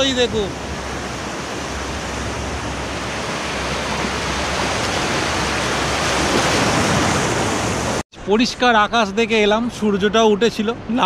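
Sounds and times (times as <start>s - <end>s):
surf washing over sand: 0.0s - 8.0s.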